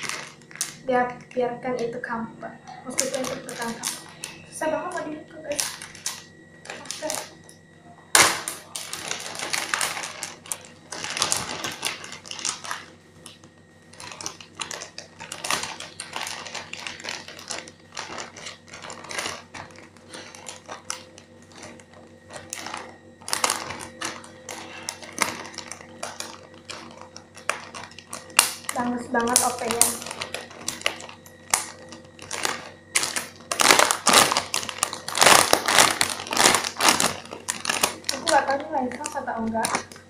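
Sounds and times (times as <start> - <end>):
plastic bag crinkling: 0.0 - 40.0.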